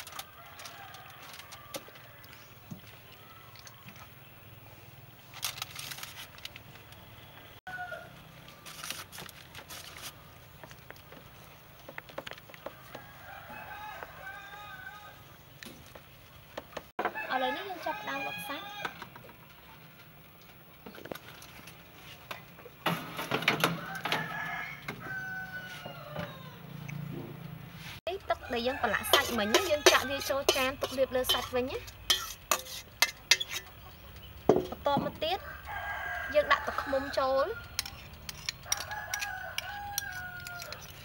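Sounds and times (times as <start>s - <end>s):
foil crinkling: 5.2s - 6.7s, 8.6s - 10.2s
metal tray clattering and scraping: 22.8s - 24.3s, 29.0s - 33.8s.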